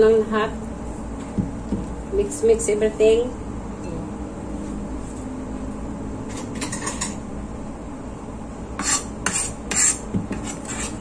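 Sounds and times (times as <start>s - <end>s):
steady low hum: 0.0s - 11.0s
scraper scraping board: 8.8s - 11.0s.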